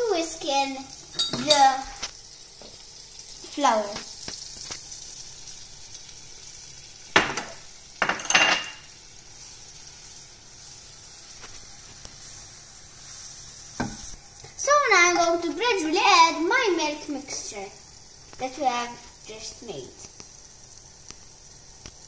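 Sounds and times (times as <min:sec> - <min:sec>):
butter sizzling in a frying pan: 0:00.0 - 0:22.0
ramekin and whisk clinking on pan: 0:01.1 - 0:01.8, 0:07.2 - 0:08.9
whisking in a pan: 0:09.0 - 0:22.0.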